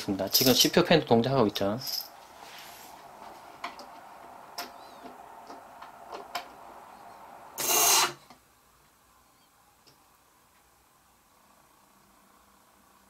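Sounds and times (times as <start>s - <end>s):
power supply fan whirring: 0.0s - 13.0s
screwdriver scraping fan blades: 7.1s - 8.3s.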